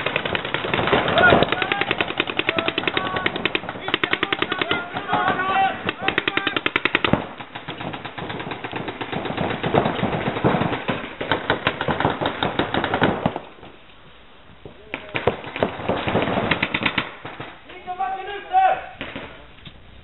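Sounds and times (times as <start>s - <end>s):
paintball markers firing: 0.0s - 13.8s, 14.7s - 17.6s.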